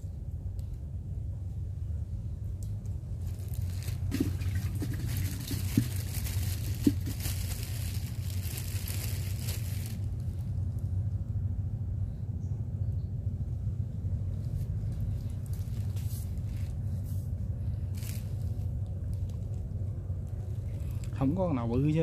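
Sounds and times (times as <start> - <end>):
steady low rumble: 0.0 - 22.0
rustling and crinkling: 3.2 - 10.9, 14.3 - 21.3.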